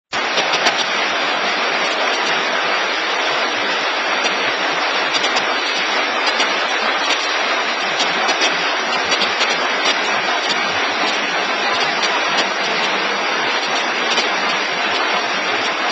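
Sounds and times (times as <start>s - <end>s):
forming machine running: 0.2s - 15.9s.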